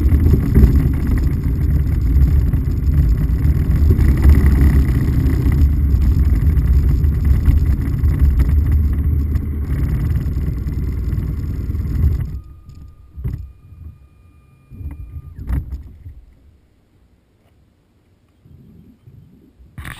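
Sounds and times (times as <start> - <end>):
wind rushing over microphone: 0.0 - 12.4
motorcycle running: 0.0 - 16.3.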